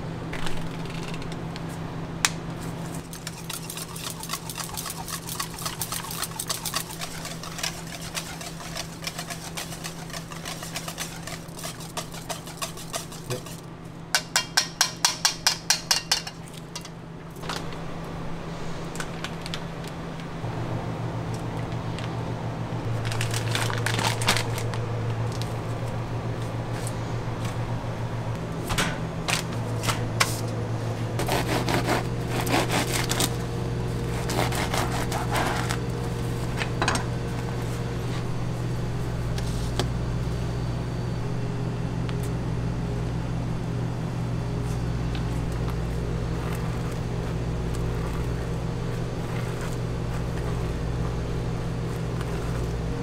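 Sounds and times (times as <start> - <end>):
low hum of kitchen equipment: 0.0 - 53.0
plastic bag crinkling: 22.9 - 25.6.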